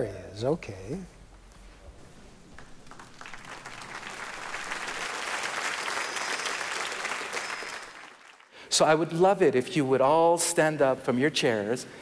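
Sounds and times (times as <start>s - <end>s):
large audience applauding: 2.6s - 8.6s.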